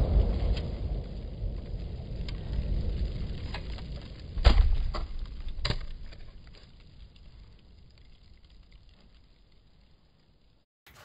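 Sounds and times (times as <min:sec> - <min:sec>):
low rumble: 0:00.0 - 0:09.0
debris falling: 0:00.0 - 0:11.0.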